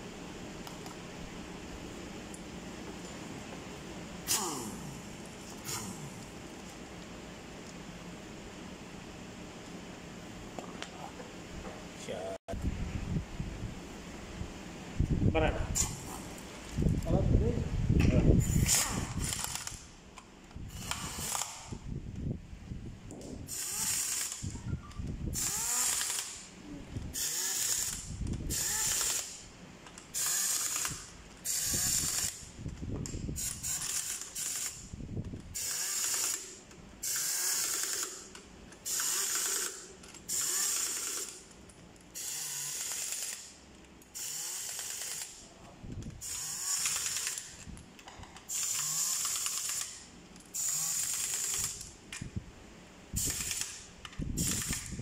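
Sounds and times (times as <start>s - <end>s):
pneumatic impact wrench bursts: 4.2s - 6.4s, 15.8s - 16.3s, 18.4s - 19.9s, 20.6s - 21.9s, 23.4s - 24.6s, 25.3s - 26.5s, 27.1s - 29.5s, 30.1s - 32.5s, 33.3s - 34.9s, 35.5s - 41.5s, 42.2s - 45.5s, 46.1s - 47.7s, 48.4s - 52.0s, 53.1s - 55.0s.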